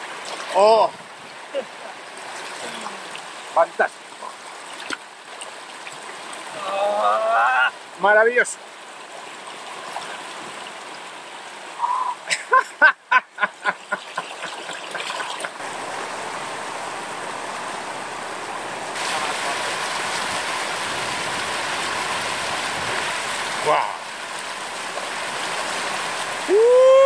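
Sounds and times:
short pitched calls: 11.8s - 12.3s
river water rushing over rocks: 13.5s - 27.0s.

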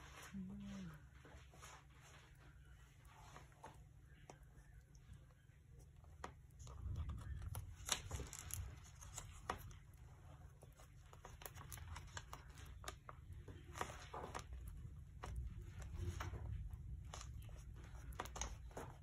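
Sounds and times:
paper and card rustling: 6.1s - 19.0s.

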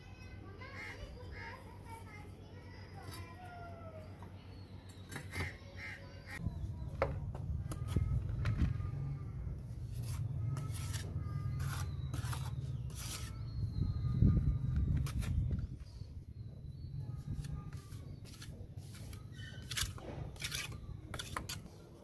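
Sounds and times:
trowel scraping mortar: 9.8s - 13.6s, 17.4s - 21.7s.

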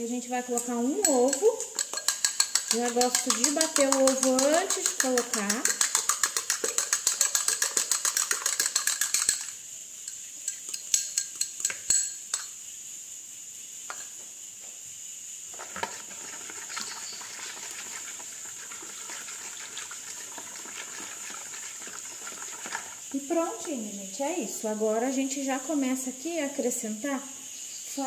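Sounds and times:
utensil beating egg in dish: 0.5s - 9.6s, 15.6s - 23.8s
scattered clinks and taps: 0.6s - 12.6s.

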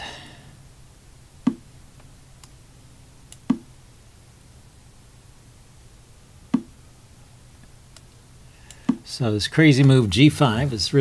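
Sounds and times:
chess move clacks: 3.4s - 3.7s
faint clicks: 7.6s - 9.0s.

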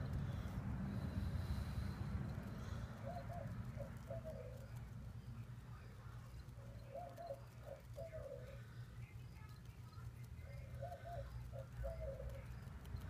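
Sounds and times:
steady low rumble: 0.0s - 13.0s
dove cooing: 2.6s - 4.9s, 6.5s - 8.8s, 10.4s - 12.6s.

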